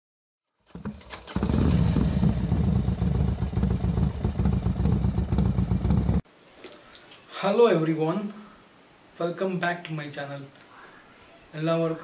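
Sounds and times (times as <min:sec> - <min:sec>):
motorcycle engine running: 0:00.7 - 0:06.2.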